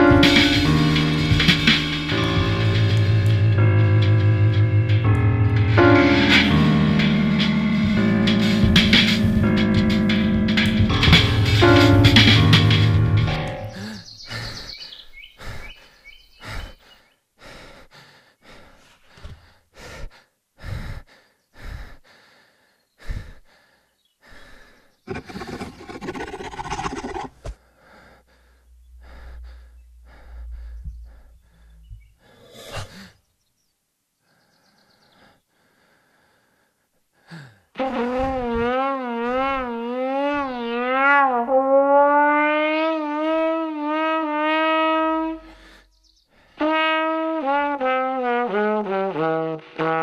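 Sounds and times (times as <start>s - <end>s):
short gasps and breaths: 13.7s - 33.3s, 34.3s - 37.7s, 45.5s - 46.6s
low rumble: 25.1s - 32.4s.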